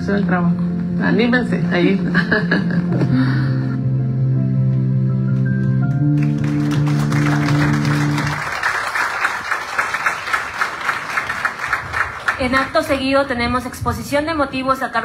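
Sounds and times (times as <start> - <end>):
audience applause: 6.2 - 12.8.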